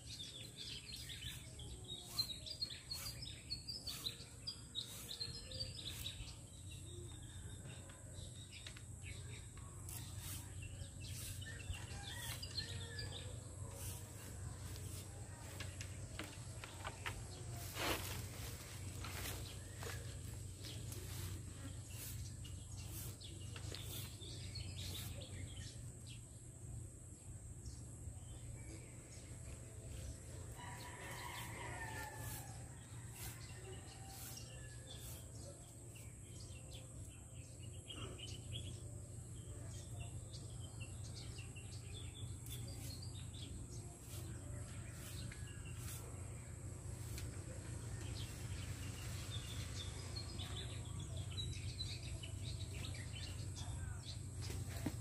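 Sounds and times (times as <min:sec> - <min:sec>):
small birds chirping: 0:00.0 - 0:26.5, 0:27.6 - 0:55.0
rooster crowing: 0:30.6 - 0:32.6.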